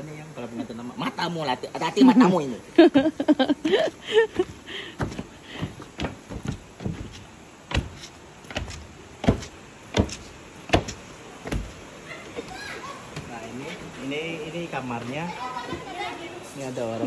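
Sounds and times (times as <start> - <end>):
footsteps on wooden stairs: 4.2 - 14.0.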